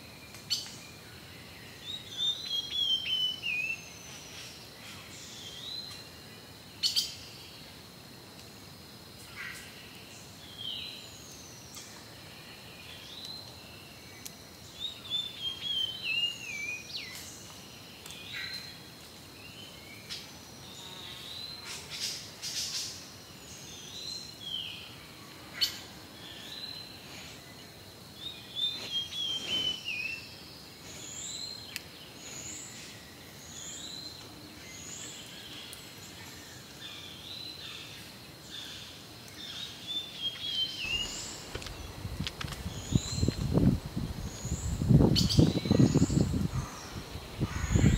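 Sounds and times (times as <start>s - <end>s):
background hiss: 0.0s - 47.9s
birds chirping: 25.6s - 47.9s.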